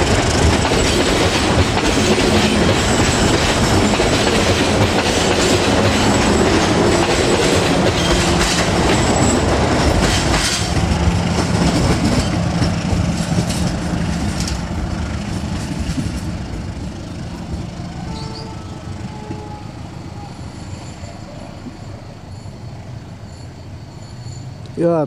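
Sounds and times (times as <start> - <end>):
carriages rattling: 0.0 - 19.6
train wheels clattering: 0.0 - 19.9
wheel squeals: 17.8 - 25.0.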